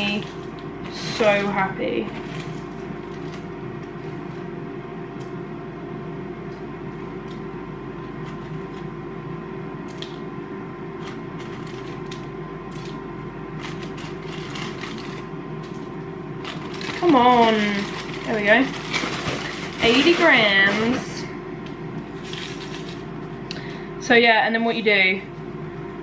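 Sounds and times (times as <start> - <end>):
steady hum with held tones: 0.0 - 26.0.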